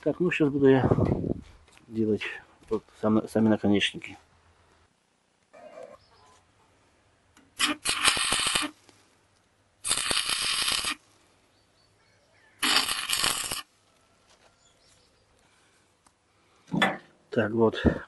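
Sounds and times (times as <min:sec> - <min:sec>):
arc welding: 0:07.6 - 0:08.8, 0:09.8 - 0:11.0, 0:12.6 - 0:13.7.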